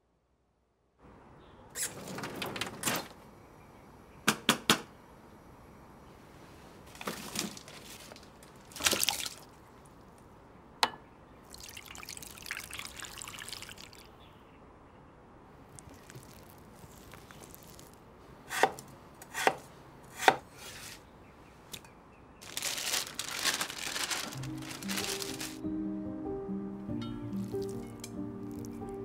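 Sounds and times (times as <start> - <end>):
rustling: 6.7 - 9.0, 15.7 - 18.1, 21.7 - 25.6.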